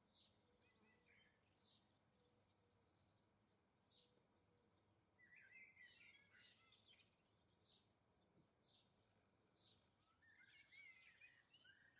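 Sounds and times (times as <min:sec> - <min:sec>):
songbird calls: 0:09.7 - 0:11.9.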